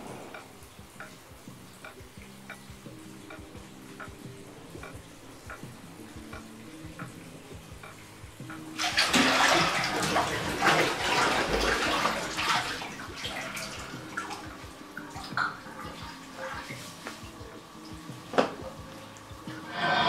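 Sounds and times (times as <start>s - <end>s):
bathwater splashing: 3.2s - 20.0s.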